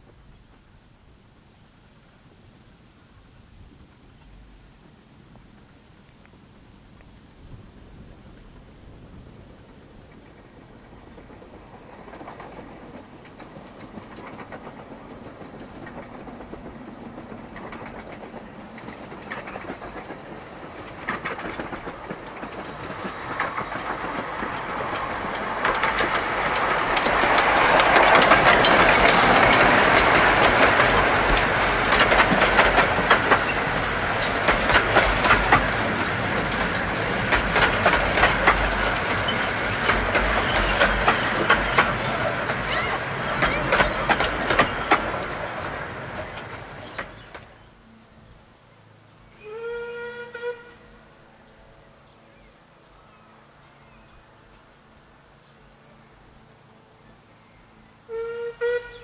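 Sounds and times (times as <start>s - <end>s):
miniature steam train passing: 3.9s - 59.0s
steam hiss: 7.2s - 47.6s
wheels clicking over rail joints: 8.9s - 47.7s.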